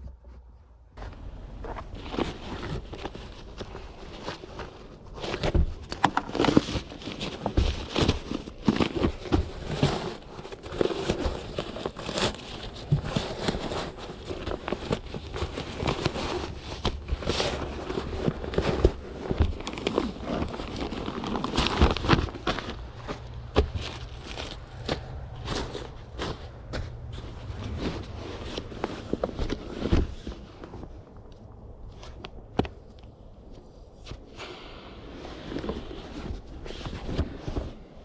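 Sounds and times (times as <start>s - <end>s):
nylon fabric rustling: 1.7s - 31.0s
scraping across mattress: 6.5s - 30.9s.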